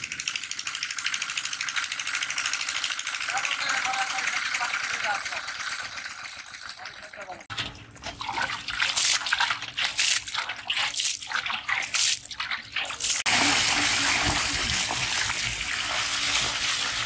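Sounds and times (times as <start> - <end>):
water pouring and splashing: 2.8 - 17.0.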